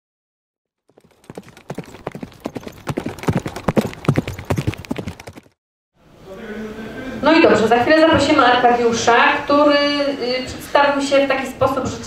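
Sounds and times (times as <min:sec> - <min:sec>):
galloping hoofbeats: 0:00.8 - 0:05.6.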